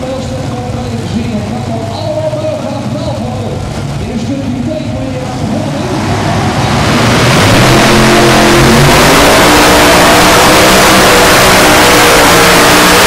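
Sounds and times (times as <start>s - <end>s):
tractor engines revving: 5.2s - 13.0s.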